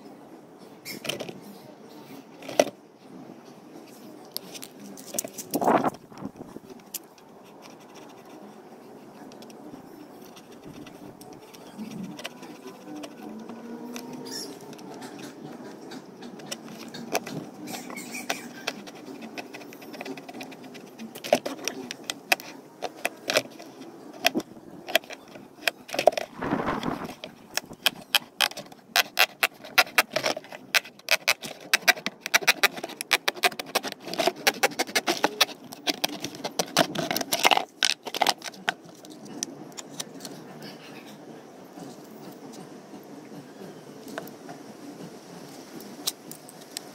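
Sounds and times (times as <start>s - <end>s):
knife blade sawing through plastic: 11.5s - 38.4s.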